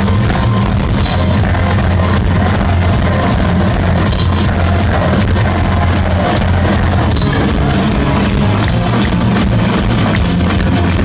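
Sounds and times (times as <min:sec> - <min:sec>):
heavy metal band playing: 0:00.0 - 0:11.0.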